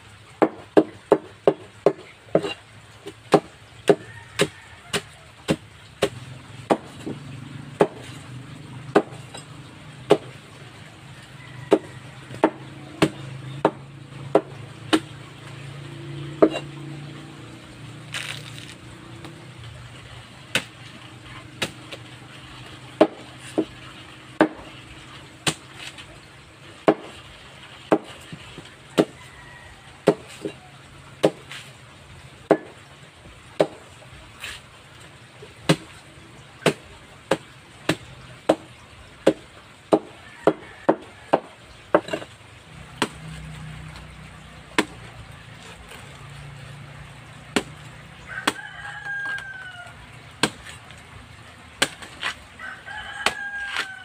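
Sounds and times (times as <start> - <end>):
machete chopping: 0.4 - 7.2, 7.8 - 8.2, 8.9 - 10.4, 11.7 - 15.1, 18.1 - 19.4, 20.5 - 22.1, 23.0 - 23.8, 24.4 - 24.7, 25.4 - 26.0, 26.8 - 27.2, 27.9 - 28.4, 29.0 - 29.2, 31.2 - 31.6, 32.5 - 32.7, 33.6 - 33.8, 35.7 - 36.0, 36.6 - 42.3, 42.9 - 43.5, 44.8 - 46.1, 47.5 - 47.9, 50.4 - 50.8, 51.8 - 52.4.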